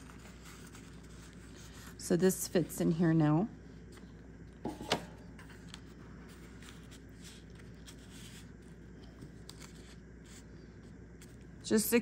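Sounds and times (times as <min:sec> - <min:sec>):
paper and card rustling: 0:00.0 - 0:02.0, 0:05.4 - 0:10.5.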